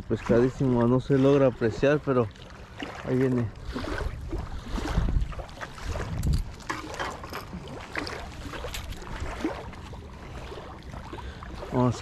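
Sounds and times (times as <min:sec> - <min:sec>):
waves lapping against concrete: 0:00.0 - 0:12.0
wind buffeting microphone: 0:03.4 - 0:10.8.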